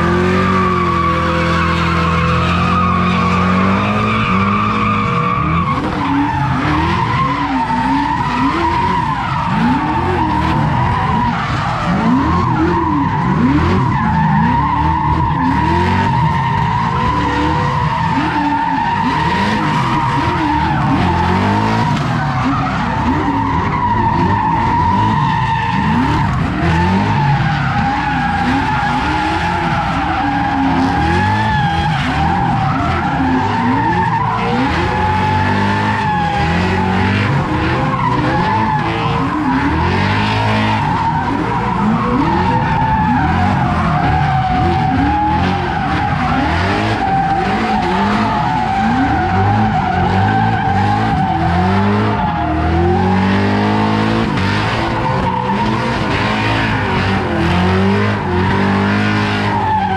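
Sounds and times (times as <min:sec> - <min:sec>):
car engine revving: 0:00.0 - 0:59.9
tyres squealing: 0:00.0 - 0:59.9.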